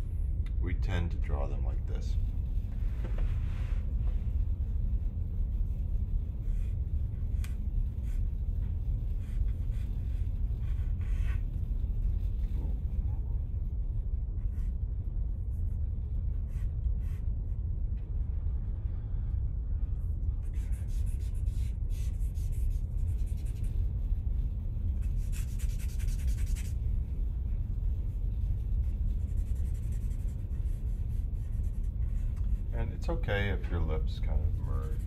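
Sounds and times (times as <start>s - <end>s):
low background rumble: 0.0s - 35.0s
charcoal scratching on paper: 5.6s - 12.5s, 20.4s - 26.9s, 27.9s - 32.7s.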